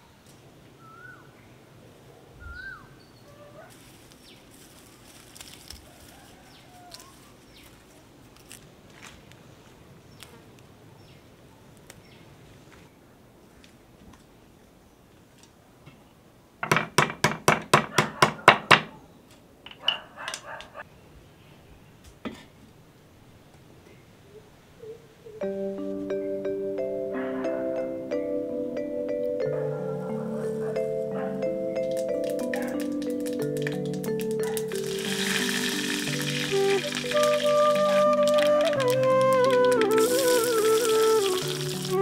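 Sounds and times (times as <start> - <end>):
bird chirps: 2.4 - 3.4
leaves snapping and rustling: 3.7 - 9.4, 31.9 - 42.0.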